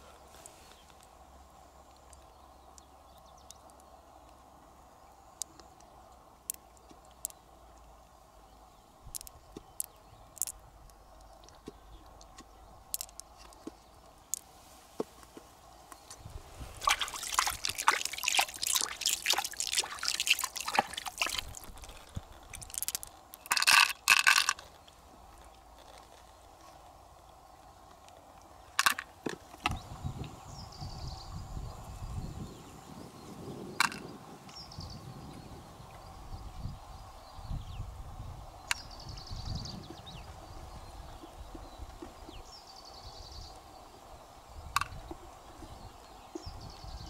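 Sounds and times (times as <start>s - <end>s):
wet squelching and crackling: 9.1s - 14.5s, 16.0s - 26.4s.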